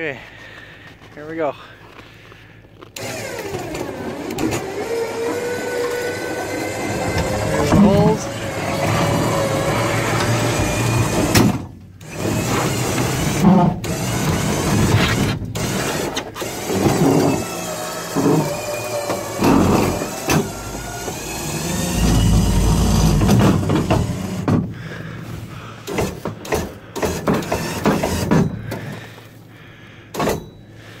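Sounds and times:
lift motor whining: 0:03.0 - 0:24.7
wooden frame clunking on truck: 0:03.5 - 0:15.5, 0:16.7 - 0:24.8.

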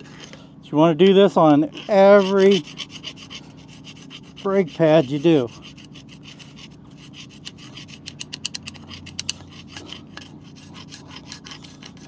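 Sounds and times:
file scraping metal: 0:01.0 - 0:12.0.

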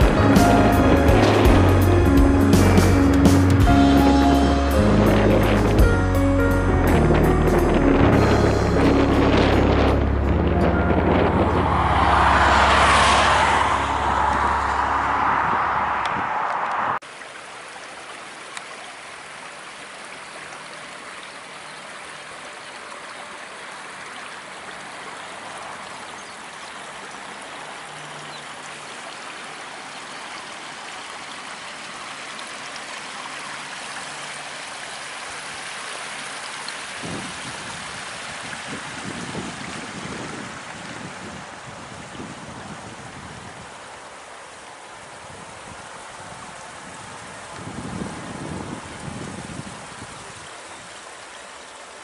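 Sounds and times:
brook babbling over stones: 0:00.0 - 0:06.1, 0:11.6 - 0:52.0
road traffic noise: 0:00.0 - 0:17.1.

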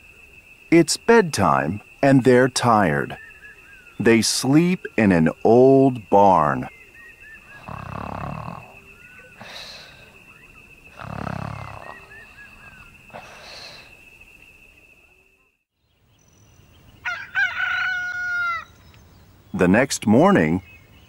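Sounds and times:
cartoon snoring: 0:07.6 - 0:08.8, 0:10.9 - 0:12.2.

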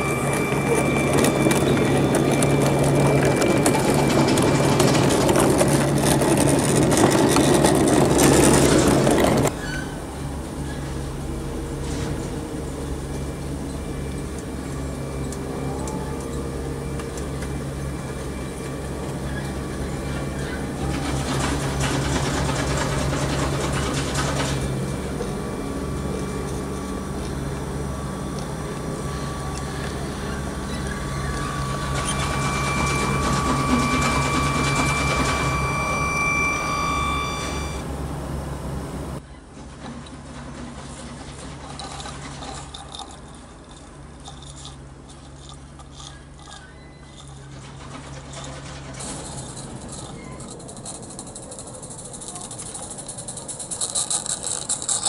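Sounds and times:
electric motor whine: 0:00.0 - 0:09.5, 0:10.3 - 0:39.2
steam locomotive hissing: 0:00.0 - 0:39.2.

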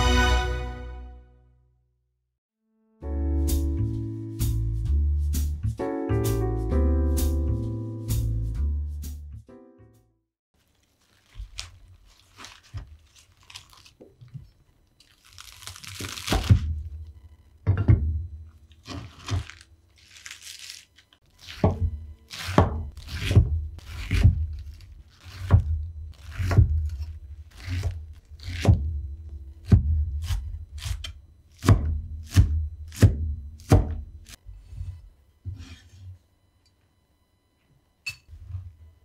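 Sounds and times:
herbs torn and rustled: 0:10.6 - 0:16.9, 0:18.5 - 0:21.6, 0:22.3 - 0:28.6
knife chopping on wooden board: 0:21.5 - 0:24.6, 0:25.2 - 0:28.9, 0:29.6 - 0:34.4.

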